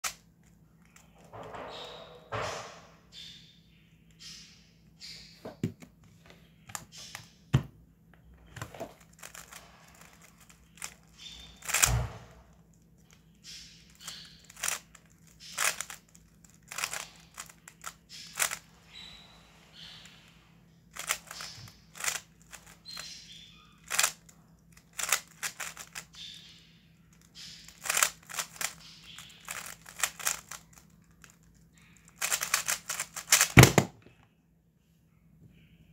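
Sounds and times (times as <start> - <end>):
plastic puzzle cube layers clacking: 8.6 - 12.0, 13.9 - 18.6, 20.9 - 23.1, 23.8 - 26.2, 27.1 - 33.9.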